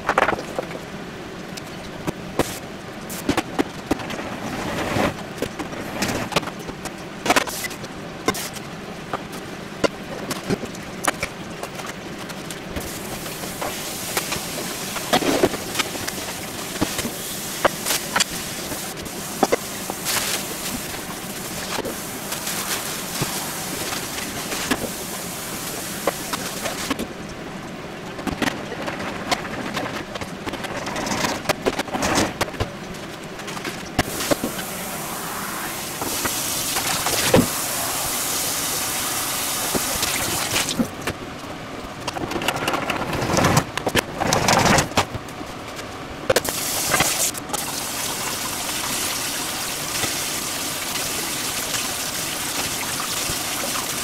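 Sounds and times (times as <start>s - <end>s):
steady hiss: 12.8s - 27.0s, 34.0s - 40.9s, 46.4s - 54.0s.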